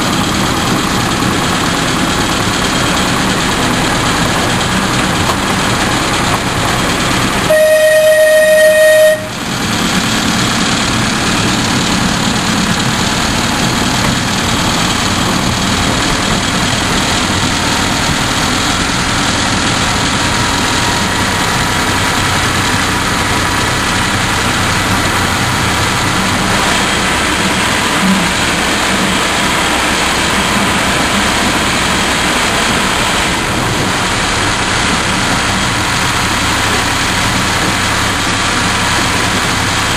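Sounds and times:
train running noise: 0.0s - 39.9s
miniature train horn: 7.3s - 9.6s.

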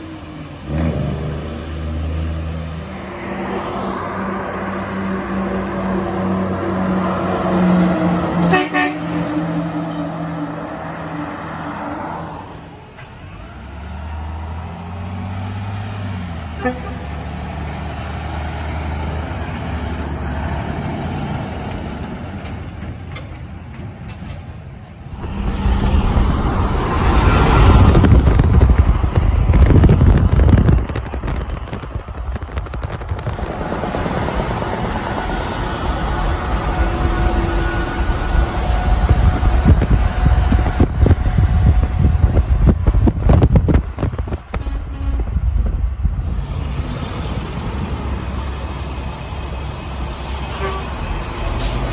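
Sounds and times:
diesel truck engine rumbling: 0.0s - 51.9s
truck passing close: 0.0s - 51.9s
truck air horn blowing: 8.4s - 10.1s, 16.6s - 17.2s, 36.6s - 39.2s, 44.5s - 45.4s, 50.2s - 51.9s.

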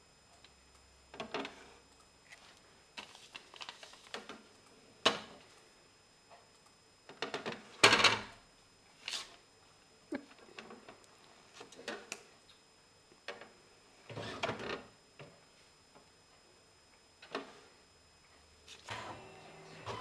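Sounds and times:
paper rustling: 2.3s - 4.3s
clicks and knocks at printer: 3.9s - 5.4s, 7.1s - 8.3s, 14.1s - 15.4s, 17.2s - 17.6s.

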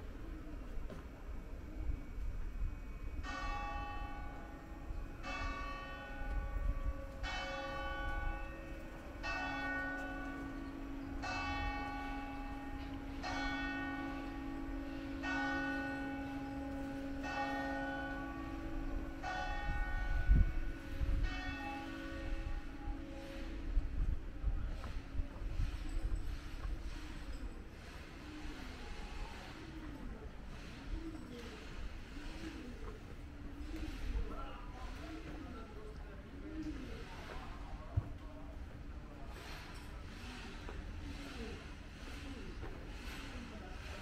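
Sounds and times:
church bell tolling: 3.2s - 23.8s.

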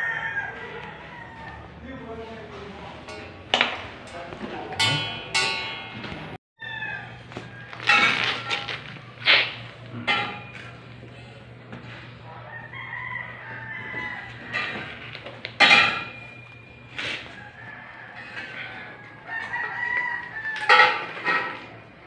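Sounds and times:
roosters crowing: 0.0s - 22.0s
steady low hum: 7.0s - 19.3s.

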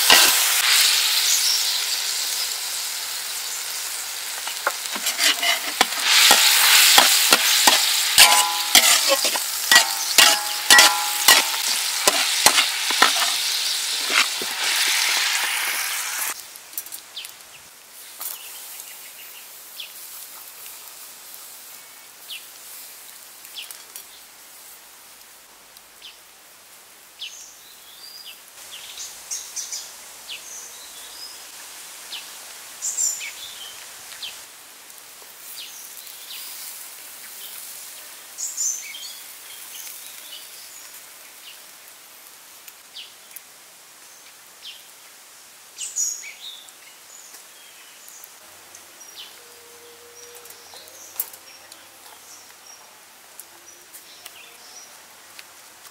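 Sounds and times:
steady hiss: 0.0s - 27.6s, 28.4s - 49.4s
birds chirping: 4.4s - 14.8s.

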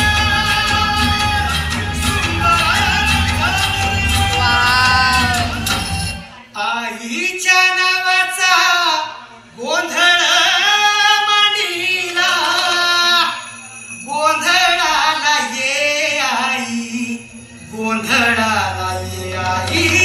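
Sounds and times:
solo voice singing: 0.0s - 5.8s.

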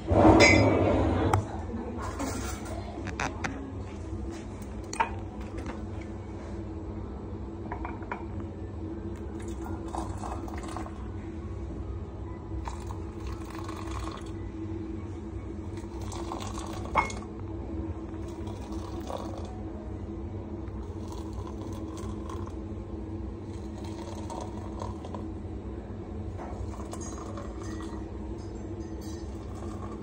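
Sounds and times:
steady low hum: 0.0s - 30.0s
glassware clinking: 0.4s - 0.8s, 4.9s - 5.2s, 16.0s - 17.3s, 26.4s - 30.0s
hot water pouring into glasses: 9.3s - 11.1s, 12.6s - 14.4s, 15.7s - 17.3s, 18.1s - 19.6s, 20.7s - 22.7s, 23.4s - 25.4s, 26.5s - 28.3s, 29.0s - 30.0s.

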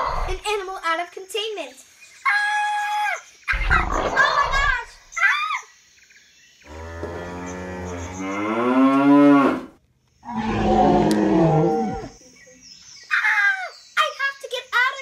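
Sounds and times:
wavering creature calls: 3.5s - 5.0s.

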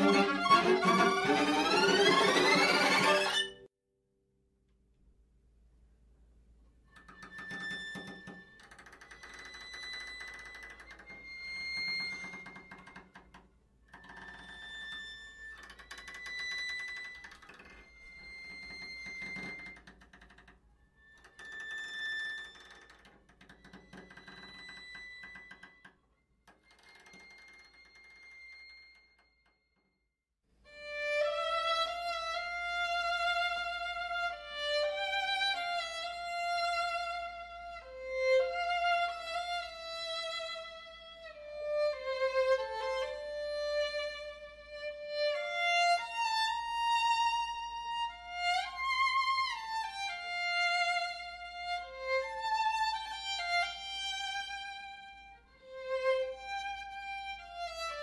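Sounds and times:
solo violin slow melody: 0.0s - 3.7s, 6.9s - 20.4s, 30.7s - 58.0s.

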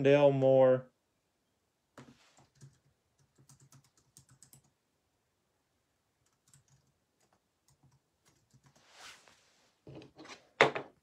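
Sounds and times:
keyboard typing: 2.3s - 4.8s, 6.2s - 8.8s.

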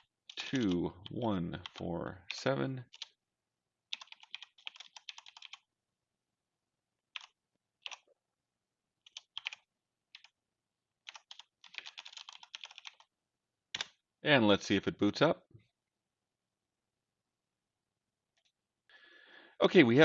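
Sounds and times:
typing on a computer keyboard: 0.0s - 3.2s, 3.9s - 5.7s, 7.1s - 8.1s, 9.0s - 10.4s, 11.0s - 13.1s, 13.7s - 13.9s.

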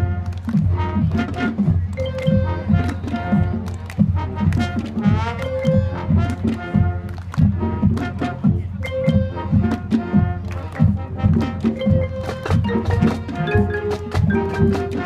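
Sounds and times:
wind instruments: 0.0s - 15.0s
marimbas: 2.0s - 3.0s, 5.4s - 6.0s, 8.8s - 9.8s, 11.7s - 15.0s
drum hits: 11.8s - 15.0s.

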